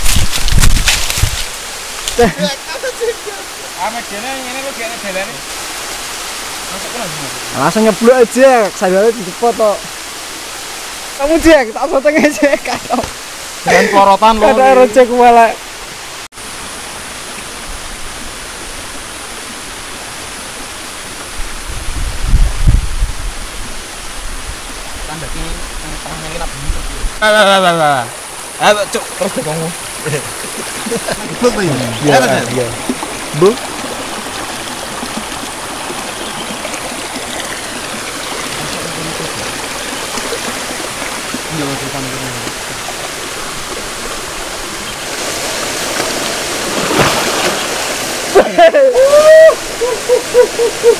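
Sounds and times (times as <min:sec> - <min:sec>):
wind buffeting microphone: 0:00.0 - 0:01.6, 0:21.3 - 0:27.2
stream flowing over stones: 0:00.0 - 0:50.9.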